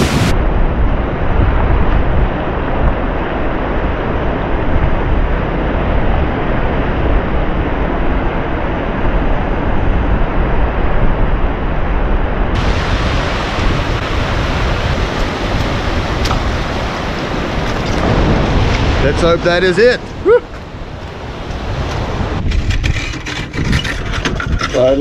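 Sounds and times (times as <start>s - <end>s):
surf breaking over rocks: 0.0s - 0.6s, 12.6s - 22.6s
wind buffeting microphone: 0.0s - 25.0s.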